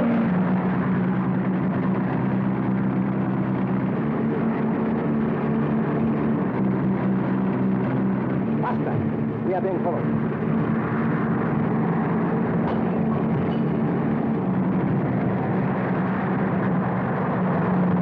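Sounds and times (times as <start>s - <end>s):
car engine running: 0.0s - 18.0s
road noise: 0.0s - 18.0s.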